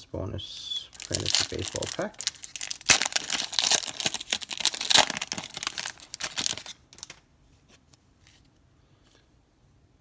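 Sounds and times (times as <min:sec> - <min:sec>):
foil wrapper crinkling and tearing: 0:00.9 - 0:07.2.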